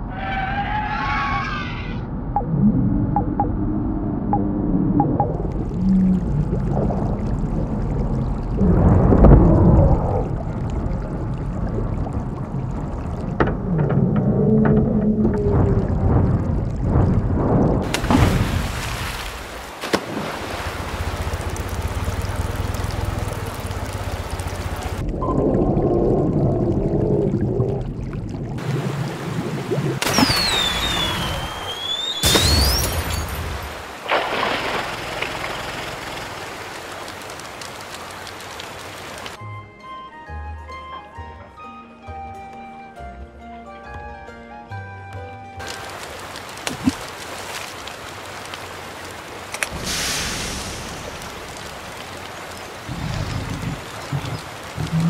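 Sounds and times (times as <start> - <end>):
rushing water: 5.0 - 39.4, 45.3 - 55.0
dinosaur roar: 52.9 - 55.0.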